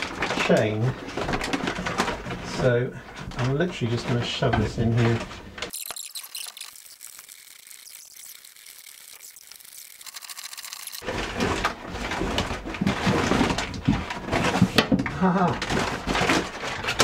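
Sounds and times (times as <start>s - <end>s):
paper sack rustling: 11.0s - 17.0s.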